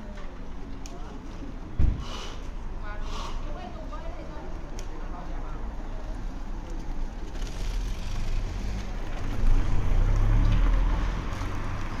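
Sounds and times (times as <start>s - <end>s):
vehicle passing by: 7.2s - 12.0s.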